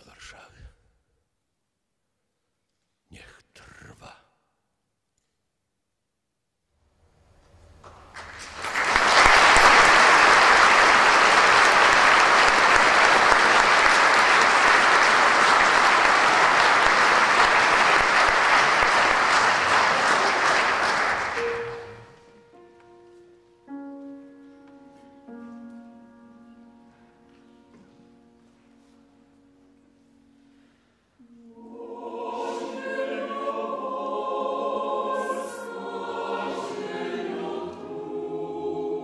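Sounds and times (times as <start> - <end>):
audience applauding: 7.9 - 22.1
quiet instrumental music: 21.4 - 39.0.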